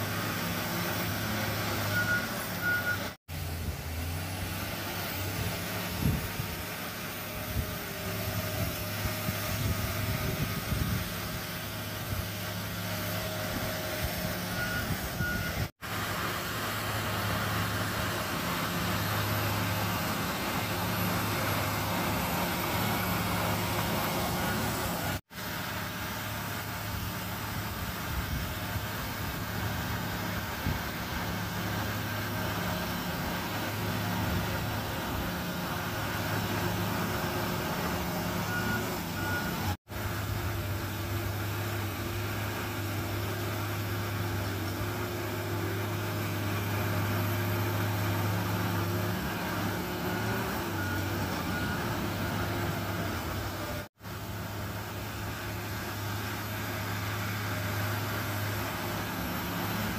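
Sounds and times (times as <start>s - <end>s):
bulldozer diesel engine under load: 0.0s - 59.9s
reversing alarm beeps: 1.7s - 3.2s, 14.2s - 15.7s, 38.2s - 39.8s, 49.9s - 53.3s.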